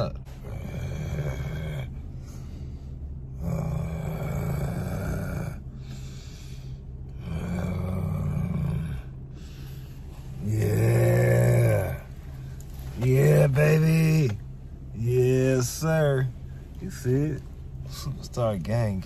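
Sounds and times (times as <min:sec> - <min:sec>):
man growling: 0:00.4 - 0:02.0, 0:03.3 - 0:05.7, 0:07.2 - 0:09.2, 0:10.4 - 0:12.1.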